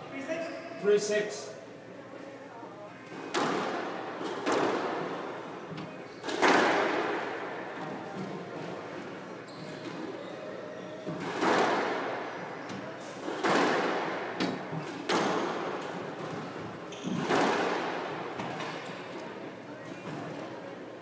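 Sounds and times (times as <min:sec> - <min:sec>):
squash ball smacking rackets and walls: 0:03.1 - 0:08.7, 0:11.1 - 0:19.0.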